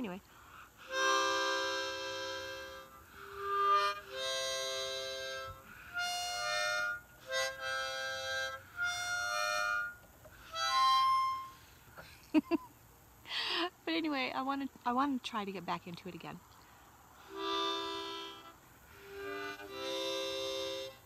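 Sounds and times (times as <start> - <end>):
harmonica chords: 0.0 - 12.2, 17.2 - 21.0.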